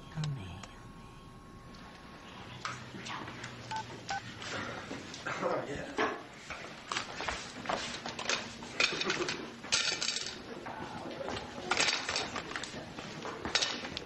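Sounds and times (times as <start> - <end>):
plates and cutlery clinking: 8.2 - 10.5.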